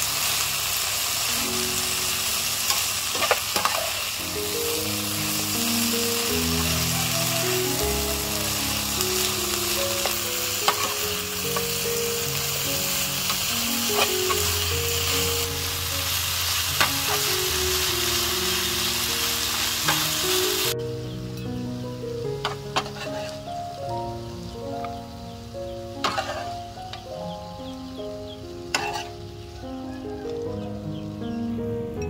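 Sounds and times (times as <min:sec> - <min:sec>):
food sizzling in a wok: 0:00.0 - 0:31.3
soft background music: 0:00.2 - 0:32.0
metal spatula scraping a pan: 0:02.7 - 0:04.0, 0:10.0 - 0:11.7, 0:13.3 - 0:14.5, 0:22.4 - 0:23.4, 0:26.0 - 0:26.6, 0:28.7 - 0:29.2.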